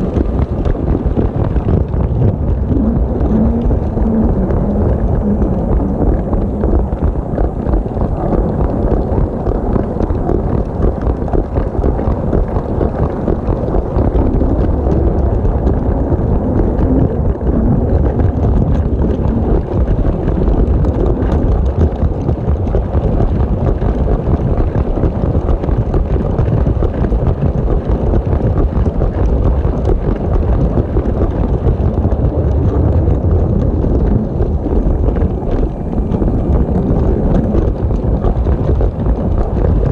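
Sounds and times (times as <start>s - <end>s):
electric train motor rumble: 1.8s - 8.2s.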